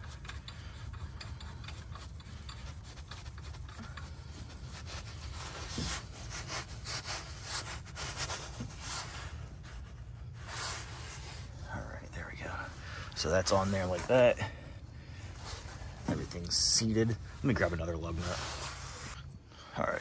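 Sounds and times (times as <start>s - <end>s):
lug nut threads scraping and clicking: 0.0s - 7.7s.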